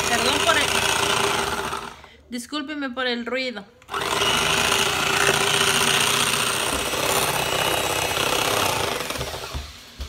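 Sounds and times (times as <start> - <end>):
beaters whipping cream: 0.0 - 2.0, 3.8 - 10.0
electric mixer whirring: 0.0 - 2.1, 3.8 - 9.8.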